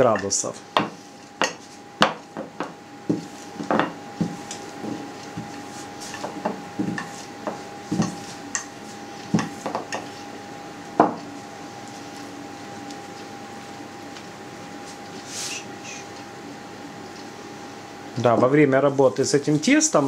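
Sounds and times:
rolling pin knocking on board: 0.8 - 5.0.

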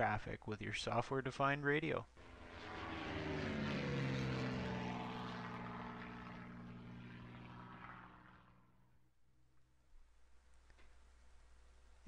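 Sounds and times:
held tones sagging in pitch: 2.2 - 8.7
low droning whoosh: 2.2 - 8.8.

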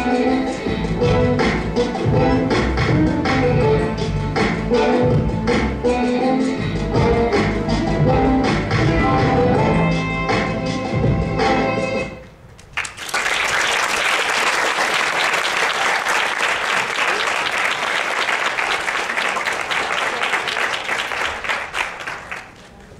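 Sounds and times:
music: 0.0 - 12.3
audience applause: 12.8 - 22.9.

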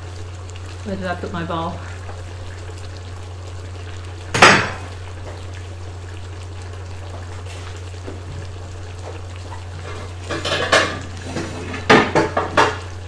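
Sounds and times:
metal kitchenware clattering: 10.2 - 11.0.

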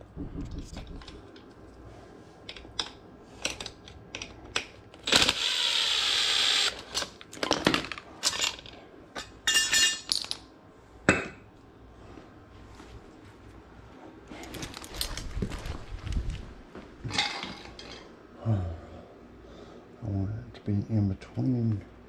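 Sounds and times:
impact driver running: 5.0 - 6.8
metal clinks and clatter: 14.4 - 15.5.

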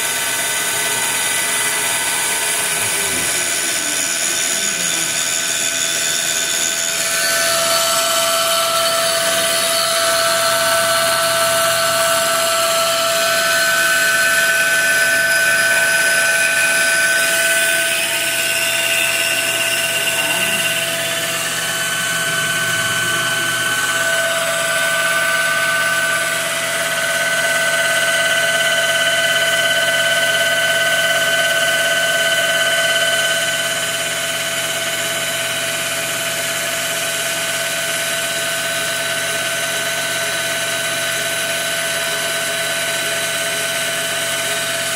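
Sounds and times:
cnc spindle running: 0.0 - 44.9
stepper motors whining: 0.6 - 29.6.

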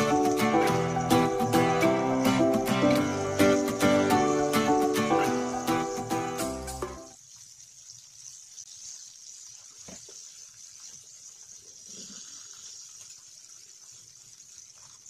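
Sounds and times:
background music: 0.0 - 7.1
chicken deep-frying in oil: 0.0 - 15.0.

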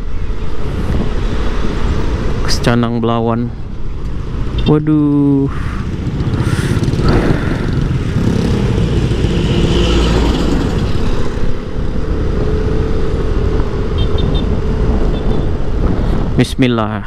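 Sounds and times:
passing motorcycles: 0.0 - 16.6
wind rushing over microphone: 0.0 - 17.0
scooter engine and tyre noise: 3.6 - 16.4.

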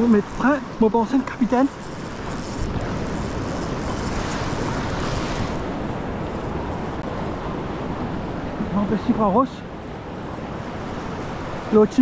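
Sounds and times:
sea surf on reef: 0.0 - 12.0
wind buffeting microphone: 0.0 - 12.0.

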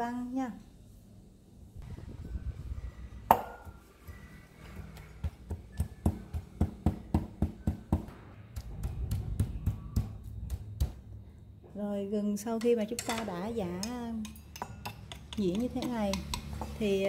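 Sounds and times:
pestle pounding in metal bowl: 3.3 - 11.1, 12.6 - 16.8.

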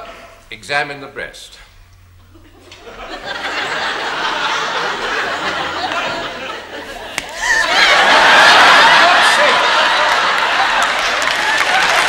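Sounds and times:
audience laughing: 2.2 - 12.0
applause: 8.4 - 12.0.

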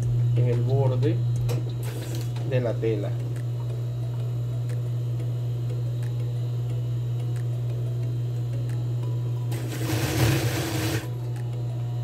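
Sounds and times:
sewing machine motor humming: 9.5 - 11.2.

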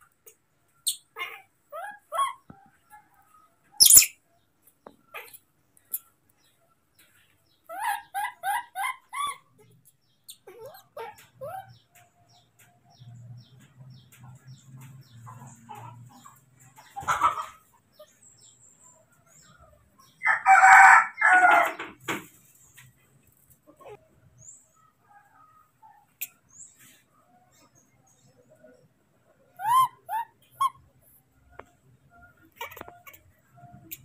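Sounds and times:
infant monkey crying: 1.1 - 2.4, 7.7 - 9.7, 10.3 - 11.7, 29.6 - 30.8, 32.4 - 34.0.

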